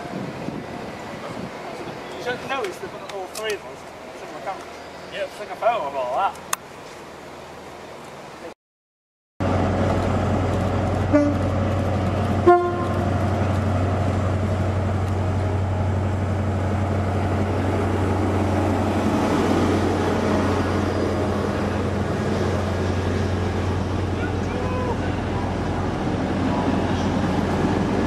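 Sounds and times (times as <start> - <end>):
train horn toots: 11.1 - 11.5, 12.4 - 13.1.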